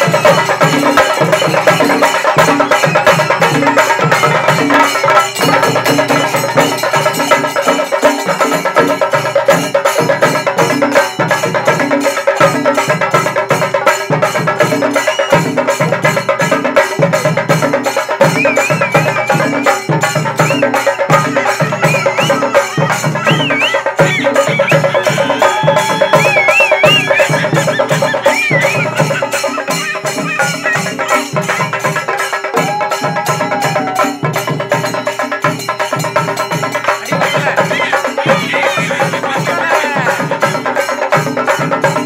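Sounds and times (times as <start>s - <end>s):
metal hand cymbals ringing: 0.0s - 39.5s
temple drums playing: 0.0s - 42.0s
high wavering whistle-like tone: 18.2s - 29.2s.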